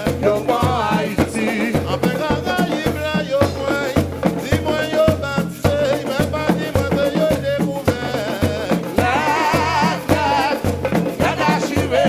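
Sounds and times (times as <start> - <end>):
hand drums and snare drums beating: 0.0 - 12.0
person singing: 0.0 - 12.0
shakers: 0.0 - 12.0.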